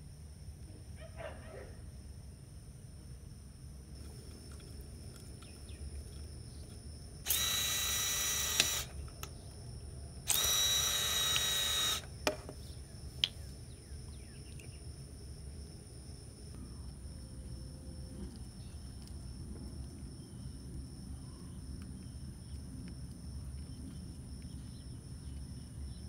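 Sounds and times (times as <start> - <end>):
mechanical buzzing: 7.2 - 9.2, 10.3 - 12.1
sharp clicks: 7.3 - 9.4, 10.3 - 12.1.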